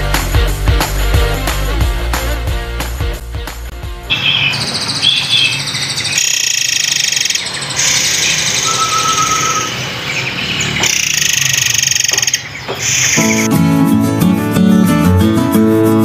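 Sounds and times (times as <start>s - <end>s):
songbirds trilling and chirping: 4.1s - 13.5s.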